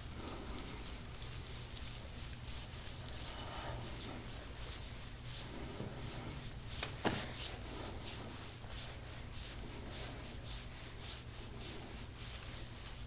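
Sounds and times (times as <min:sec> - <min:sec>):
massage strokes rubbing and swishing: 0:00.0 - 0:13.0.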